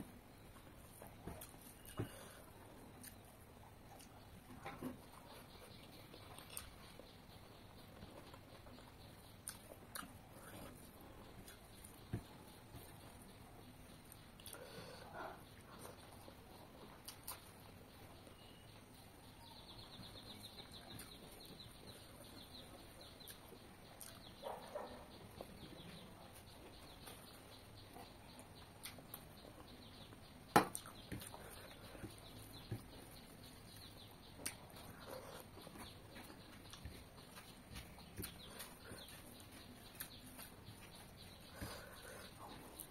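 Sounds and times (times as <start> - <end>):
chewing: 5.0 - 17.7, 19.8 - 26.0, 27.8 - 30.1, 30.7 - 42.9.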